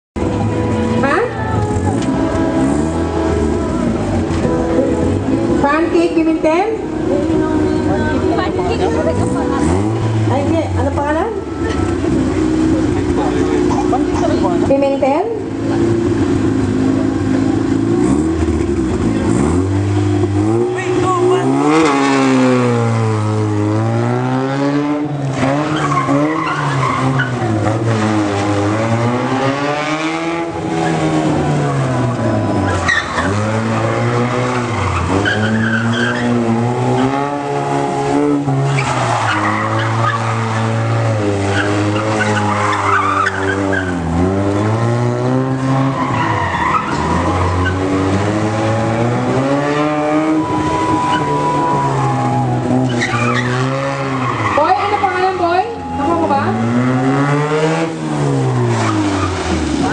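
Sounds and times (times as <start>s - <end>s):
car engine revving: 0.2s - 59.9s
tyres squealing: 20.6s - 59.9s.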